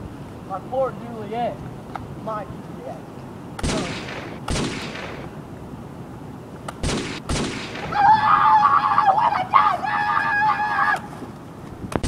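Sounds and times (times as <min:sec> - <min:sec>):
gunshots: 0:03.6 - 0:05.4, 0:06.8 - 0:08.0.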